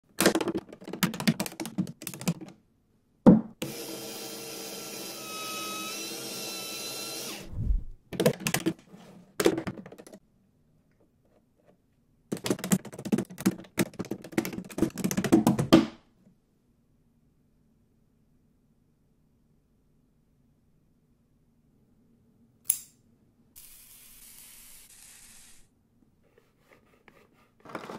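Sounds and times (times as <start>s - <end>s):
small electric motor running: 3.6s - 7.5s.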